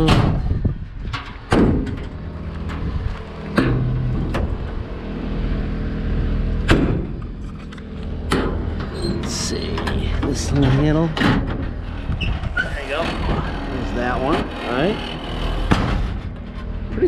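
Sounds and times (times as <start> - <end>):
metal doors slamming shut: 0.0 - 2.9, 3.5 - 4.8, 6.7 - 7.3, 8.3 - 16.4
steady low hum: 0.0 - 17.0.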